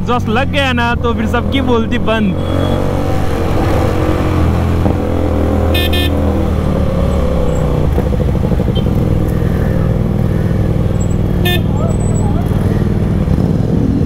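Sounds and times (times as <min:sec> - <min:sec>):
motorcycle engines running: 0:00.0 - 0:14.0
vehicle horn honk: 0:05.7 - 0:06.2, 0:11.4 - 0:12.0.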